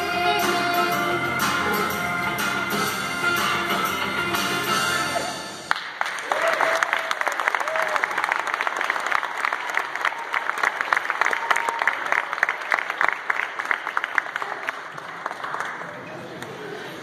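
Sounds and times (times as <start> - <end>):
audience applauding: 5.7 - 16.6.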